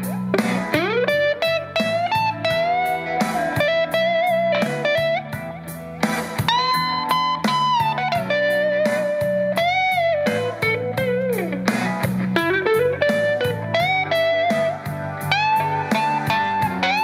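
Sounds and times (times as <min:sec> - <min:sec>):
electric guitar blues lead: 0:00.0 - 0:17.0
held bass line: 0:00.0 - 0:17.0
steady backing beat: 0:00.0 - 0:17.0.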